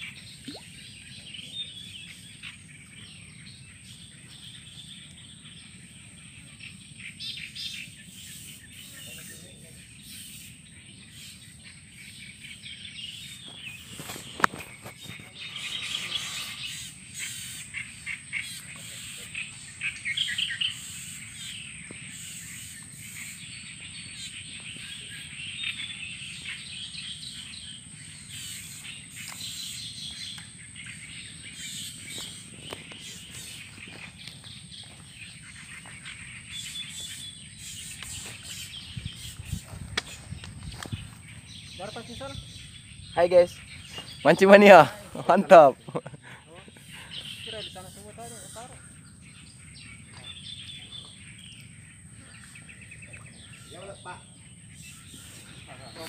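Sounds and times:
birds chirping: 0.0 - 56.0.

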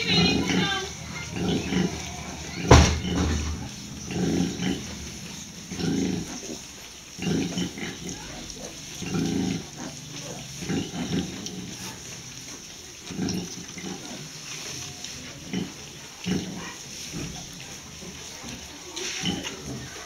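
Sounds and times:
sharp knock: 2.7 - 3.7.

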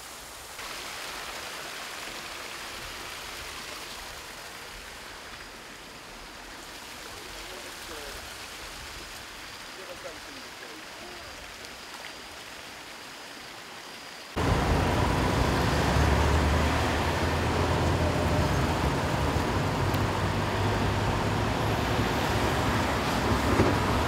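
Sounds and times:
road noise: 14.3 - 24.0
motor vehicle running: 14.4 - 24.0.

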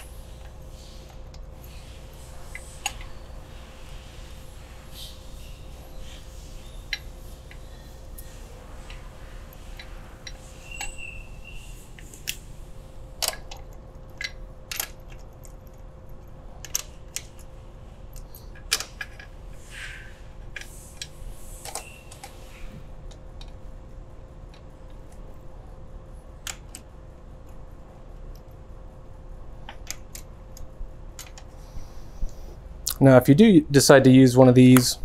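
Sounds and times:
metallic bolt clicks: 13.2 - 17.5, 18.1 - 19.3.

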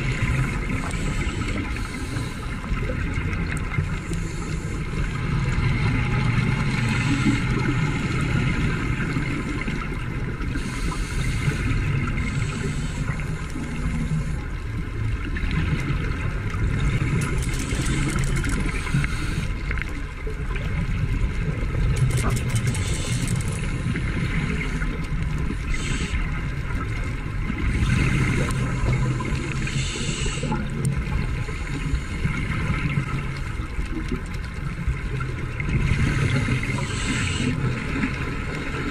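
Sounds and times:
steady low underwater drone: 0.0 - 38.9
bubbly hiss: 17.2 - 19.7, 22.4 - 24.8, 25.6 - 26.4, 27.7 - 30.8, 35.8 - 38.2.

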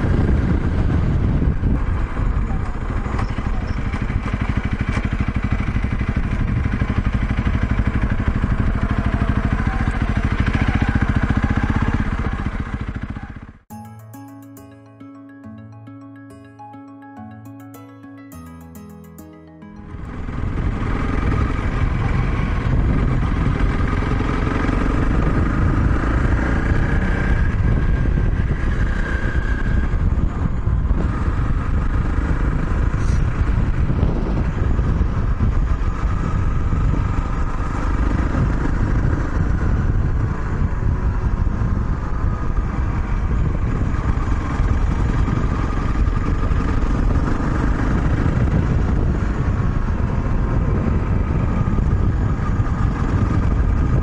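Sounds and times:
wind on microphone: 0.0 - 3.9, 27.0 - 54.0
motorcycle engine running: 0.0 - 13.6.

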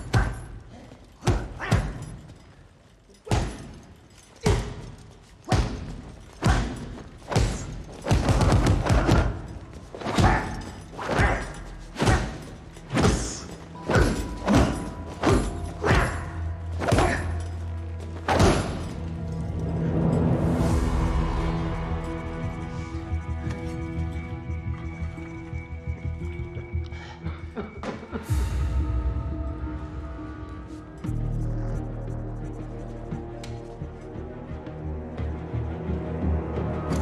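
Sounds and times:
film score music with drone: 6.4 - 37.0.

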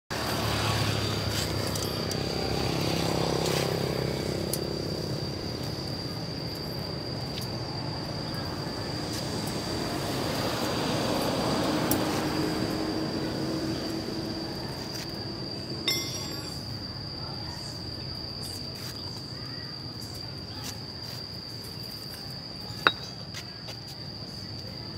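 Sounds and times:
vehicles passing: 0.1 - 17.1
bricks clinking against steel: 15.9 - 16.7, 22.8 - 23.2
thin high whine: 15.9 - 16.8.

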